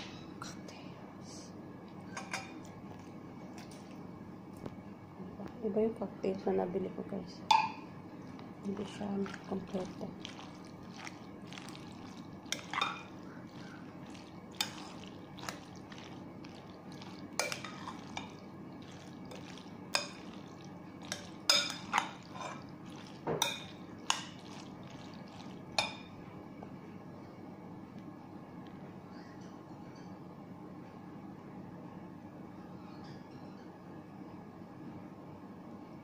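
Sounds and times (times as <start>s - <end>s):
steady low hum: 0.0s - 36.0s
spoon clinking against glass bowl: 12.5s - 15.7s, 21.0s - 24.4s.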